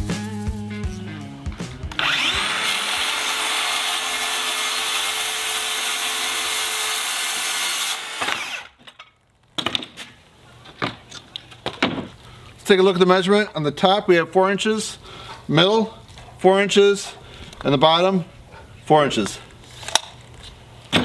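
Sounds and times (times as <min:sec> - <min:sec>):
circular saw cutting plywood: 0:01.9 - 0:08.7.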